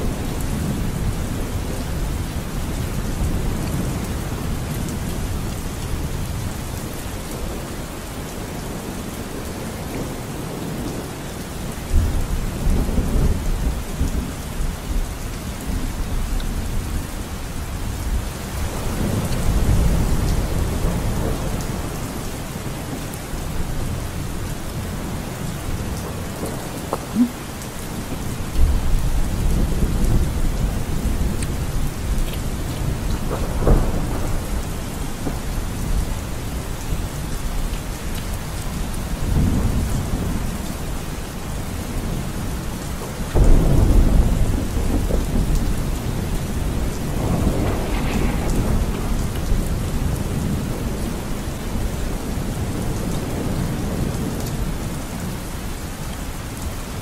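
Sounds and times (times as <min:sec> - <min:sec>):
steady rain falling: 0:00.0 - 0:57.0
low rolls of thunder: 0:18.1 - 0:27.2, 0:27.9 - 0:37.7, 0:39.0 - 0:55.4.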